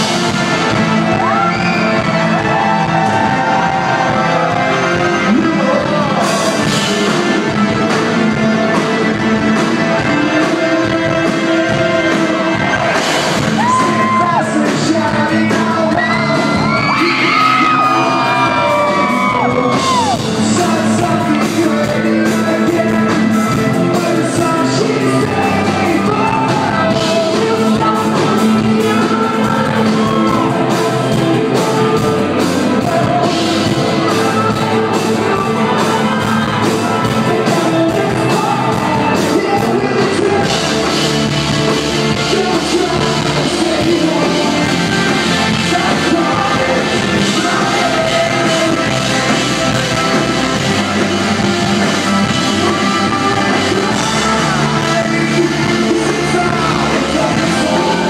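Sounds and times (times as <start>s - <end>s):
live electronic rock band: 0.0s - 58.0s.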